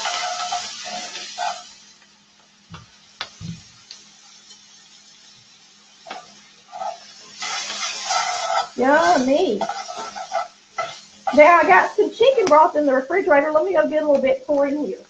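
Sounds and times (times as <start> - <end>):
vegetables sizzling in skillet: 0.0 - 15.0.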